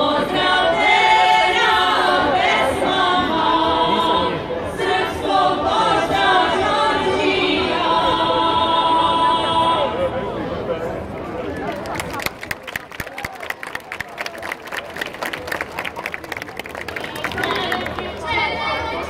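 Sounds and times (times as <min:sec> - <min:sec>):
women singing a cappella: 0:00.0 - 0:10.1.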